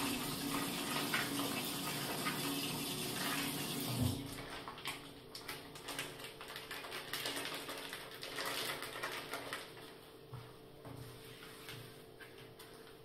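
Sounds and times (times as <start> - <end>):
plastic sachet crinkling: 4.4 - 10.0.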